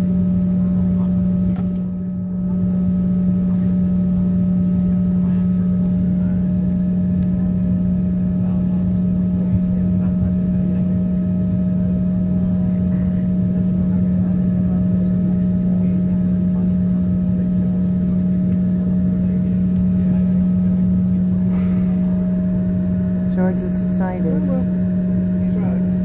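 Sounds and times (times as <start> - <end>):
airliner cabin drone: 0.0 - 26.0.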